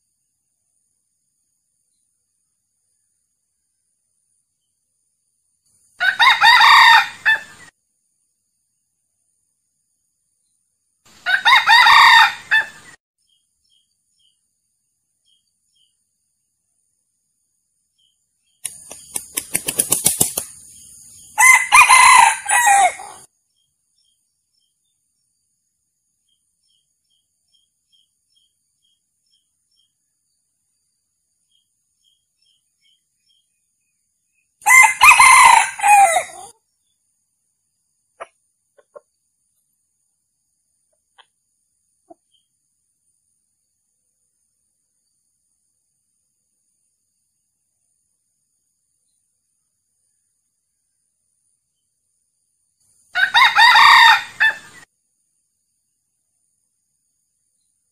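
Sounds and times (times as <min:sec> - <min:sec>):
rooster crowing: 0:06.0 - 0:07.6, 0:11.2 - 0:12.8, 0:21.4 - 0:23.3, 0:34.6 - 0:36.5, 0:53.1 - 0:54.8.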